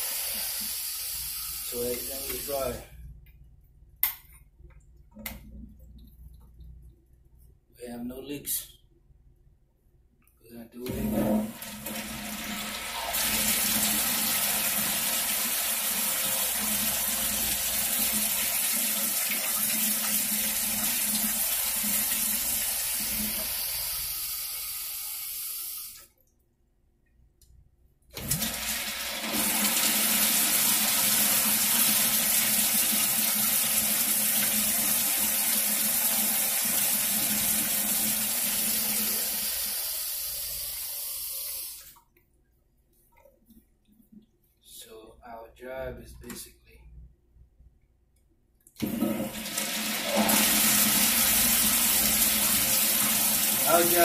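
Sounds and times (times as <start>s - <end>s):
toilet flushing: 0.0s - 2.6s, 10.8s - 26.1s, 28.2s - 42.0s, 48.8s - 54.0s.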